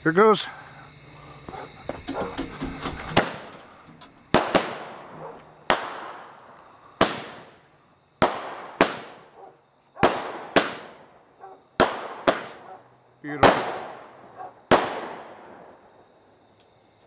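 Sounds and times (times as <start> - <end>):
firework cake bangs: 2.0 - 9.4, 10.0 - 15.8.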